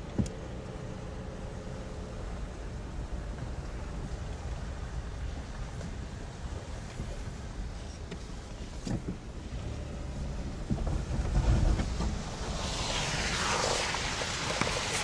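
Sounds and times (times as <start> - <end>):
car road noise rumble: 0.0 - 15.0
wind buffeting microphone: 2.3 - 15.0
tyres hissing on slush: 11.8 - 15.0.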